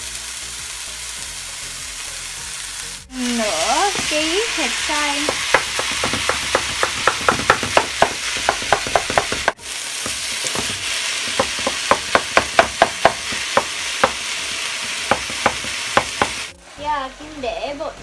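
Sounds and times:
meat sizzling in a pan: 0:00.0 - 0:18.0
sharp pops of frying: 0:03.7 - 0:16.5.

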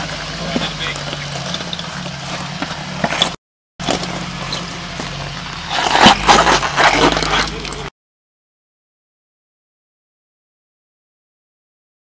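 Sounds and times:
engine running under load: 0:00.0 - 0:07.9
knocks of flung gravel: 0:00.0 - 0:07.9
tyre spinning on gravel: 0:00.0 - 0:07.9.

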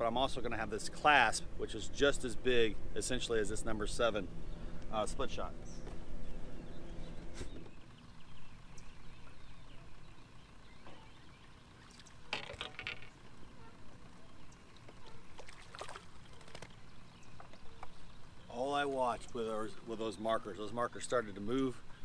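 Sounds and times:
water lapping against boat hull: 0:14.8 - 0:18.0.

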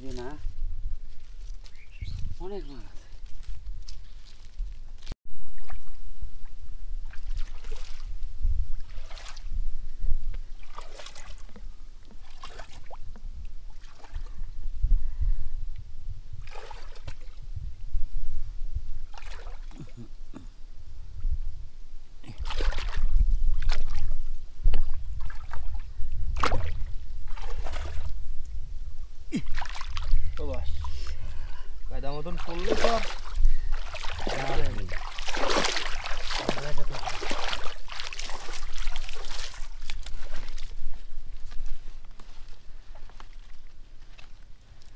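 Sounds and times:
mud squelching: 0:01.0 - 0:06.0, 0:07.0 - 0:09.5, 0:10.4 - 0:13.1, 0:19.1 - 0:20.5, 0:22.2 - 0:28.2, 0:29.3 - 0:31.2, 0:32.0 - 0:44.9
water sloshing splashes: 0:07.0 - 0:09.5, 0:10.6 - 0:13.1, 0:13.7 - 0:14.3, 0:19.1 - 0:20.0, 0:22.3 - 0:24.1, 0:24.7 - 0:28.2, 0:29.4 - 0:30.2, 0:32.2 - 0:40.8.

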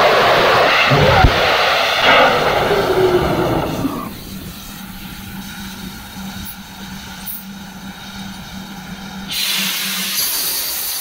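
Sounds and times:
loud rushing hiss: 0:00.0 - 0:11.0
faint pulsing tone: 0:00.9 - 0:09.4
low electronic hum: 0:00.9 - 0:09.4.

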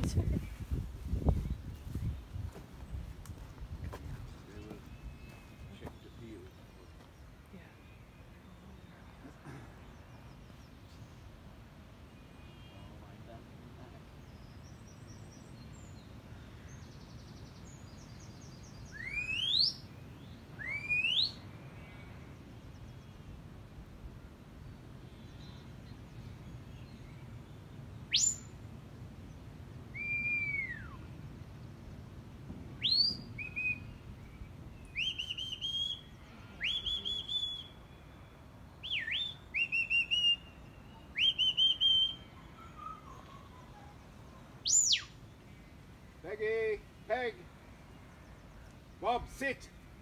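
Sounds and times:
shepherd's whistle signals: 0:32.8 - 0:33.9, 0:34.9 - 0:37.8, 0:38.8 - 0:40.4, 0:41.2 - 0:43.0.

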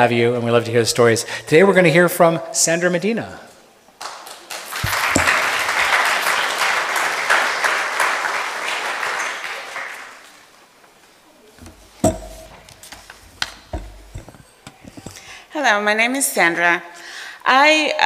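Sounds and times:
audience applauding: 0:04.0 - 0:10.6
knocks: 0:04.8 - 0:05.5, 0:11.6 - 0:15.2.

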